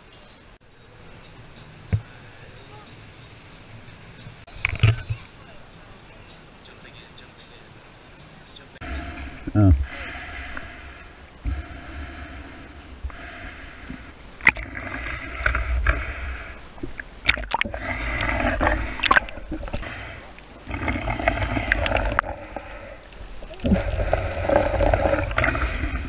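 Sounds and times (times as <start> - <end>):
water gurgling and sloshing: 8.8 - 26.0.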